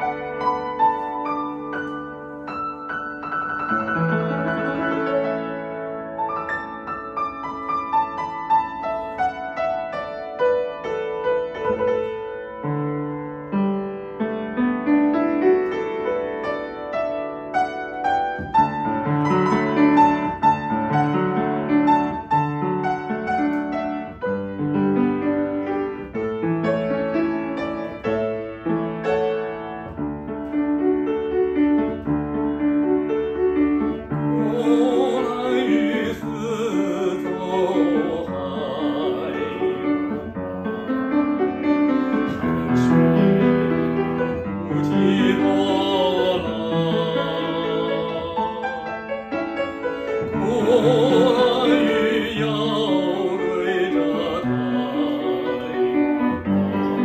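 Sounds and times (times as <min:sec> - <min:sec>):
upright piano playing: 0:00.0 - 0:57.0
man singing with vibrato: 0:34.3 - 0:41.4, 0:42.1 - 0:49.2, 0:50.2 - 0:57.0.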